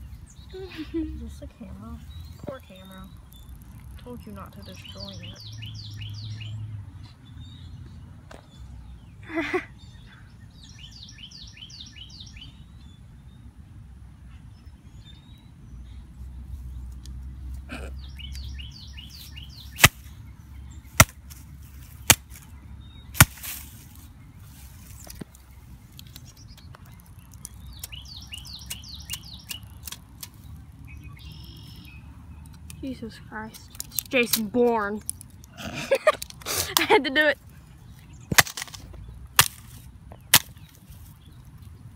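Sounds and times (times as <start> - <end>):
sharp clicks: 26.0 - 30.4.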